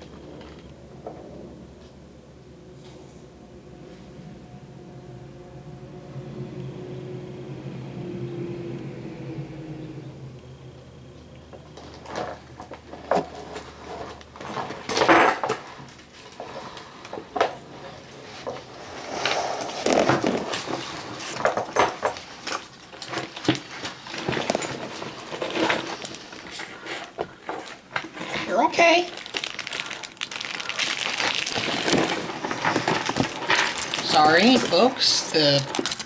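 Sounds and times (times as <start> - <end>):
lizard scuffling and scraping: 11.6 - 29.8, 31.2 - 36.0.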